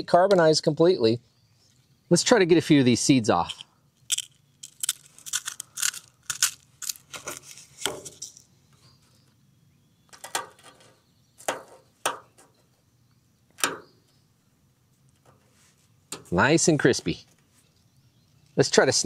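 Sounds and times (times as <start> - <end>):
seeds clicking and crunching: 3.3 - 8.5.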